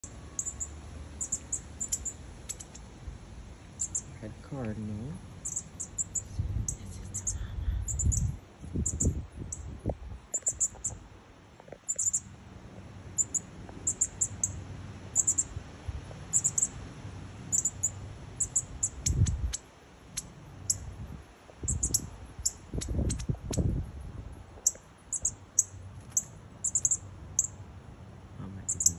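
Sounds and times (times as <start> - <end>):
nestlings chirping: 0.0 - 2.9, 3.8 - 9.7, 10.3 - 11.0, 11.8 - 12.3, 13.2 - 15.5, 16.3 - 16.8, 17.5 - 20.9, 21.6 - 23.7, 24.6 - 27.6, 28.6 - 28.9
low rumbles on microphone: 6.2 - 11.0.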